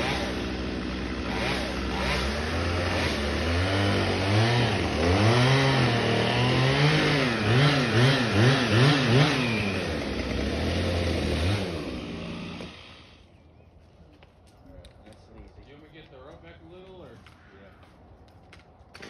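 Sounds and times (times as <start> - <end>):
chainsaw revving: 0.0 - 13.3.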